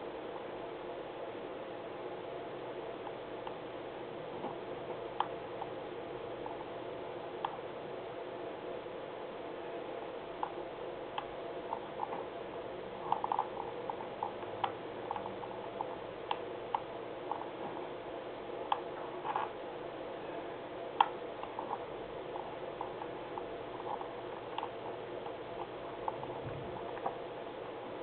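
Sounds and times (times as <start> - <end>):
steady low hum: 0.0 - 28.0
computer mouse clicks: 13.0 - 15.3, 23.8 - 27.2.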